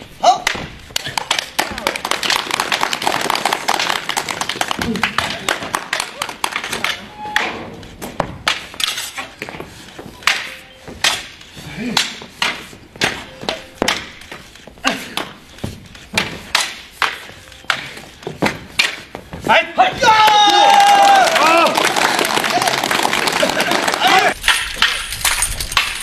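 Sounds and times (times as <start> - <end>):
pole weapons clacking: 0.3 - 20.6, 23.5 - 26.0
voices: 19.4 - 21.8.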